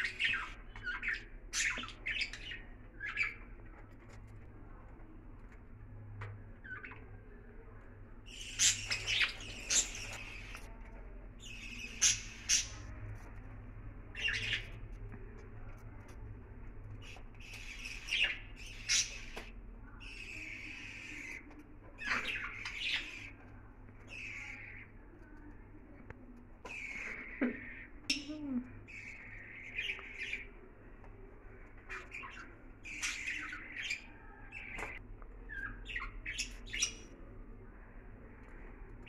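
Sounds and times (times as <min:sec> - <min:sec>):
budgerigars chirping and squawking: 0:00.0 - 0:04.1, 0:08.3 - 0:10.7, 0:11.4 - 0:13.2, 0:14.1 - 0:14.9, 0:17.0 - 0:23.5, 0:24.1 - 0:25.0, 0:26.7 - 0:28.3, 0:28.9 - 0:30.6, 0:31.8 - 0:37.2.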